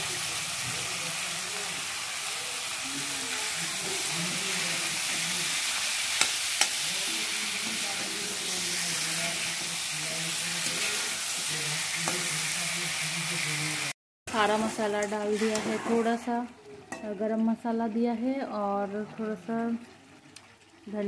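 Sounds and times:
chicken sizzling in hot oil: 0:00.0 - 0:16.4.

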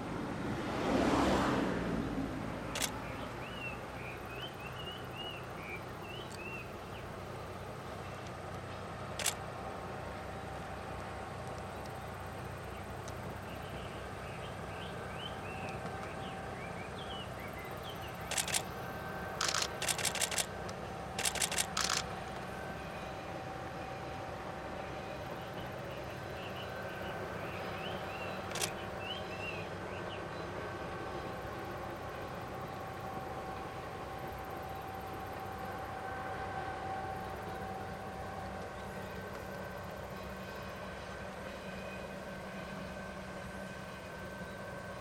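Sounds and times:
distant diesel train rumble: 0:00.0 - 0:45.0
camera shutter clicks: 0:02.8 - 0:03.0, 0:09.2 - 0:09.4, 0:18.3 - 0:18.7, 0:19.4 - 0:20.5, 0:21.2 - 0:22.1, 0:28.5 - 0:28.8.

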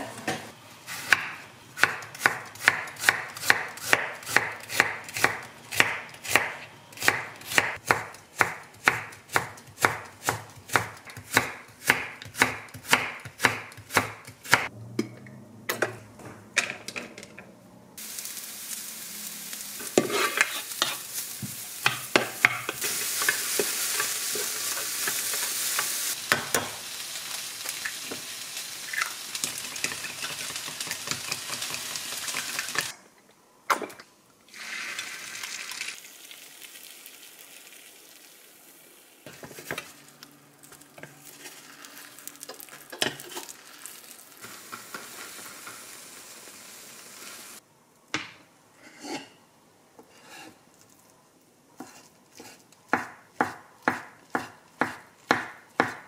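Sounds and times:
knife chopping on wooden board: 0:51.8 - 0:56.0.

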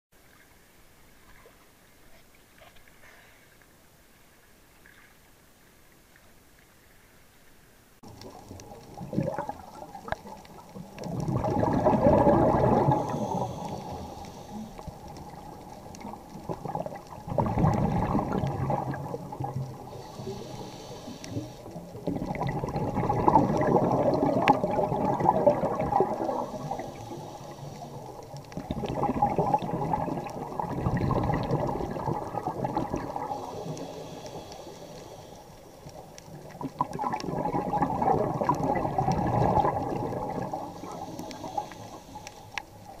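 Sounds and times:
exhaled bubbles rushing: 0:08.0 - 0:34.6, 0:35.8 - 0:42.2
regulator inhale hiss: 0:12.6 - 0:15.7, 0:19.7 - 0:22.0, 0:26.0 - 0:28.6, 0:33.0 - 0:36.2, 0:40.5 - 0:42.9.

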